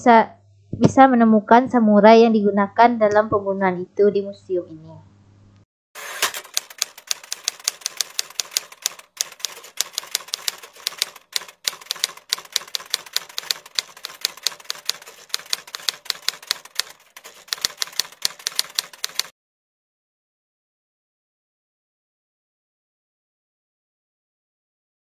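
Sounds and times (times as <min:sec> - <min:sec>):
typewriter keys clacking: 0:06.0 - 0:19.3.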